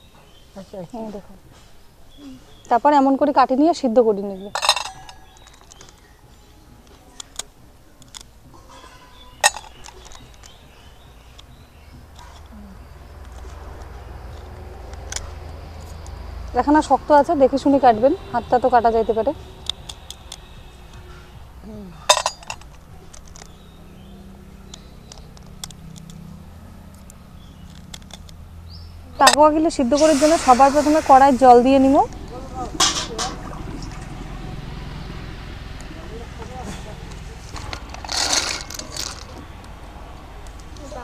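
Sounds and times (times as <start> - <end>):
snail shells cracking: 22.4 - 23.7, 24.6 - 26.3, 26.9 - 28.4.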